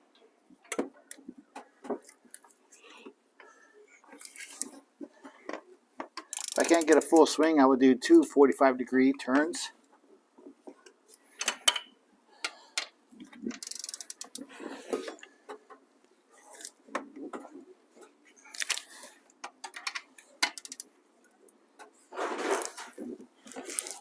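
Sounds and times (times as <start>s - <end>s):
ratchet wrench clicking: 6.3s - 7.2s, 13.6s - 14.4s, 20.4s - 20.9s.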